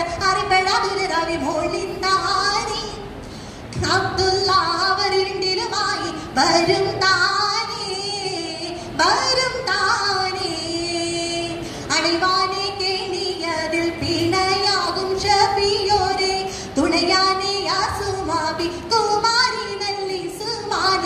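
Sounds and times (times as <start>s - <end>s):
woman singing unaccompanied: 0.0s - 3.1s, 3.7s - 21.0s.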